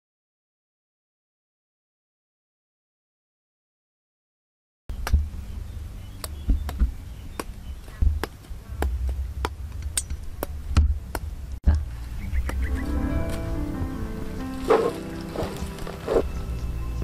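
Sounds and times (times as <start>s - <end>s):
low rumble: 4.9s - 17.0s
music: 12.6s - 17.0s.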